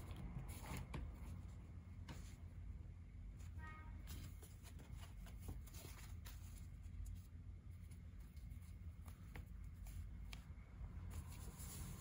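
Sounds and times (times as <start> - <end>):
faint rustling of sheet: 3.4 - 12.0.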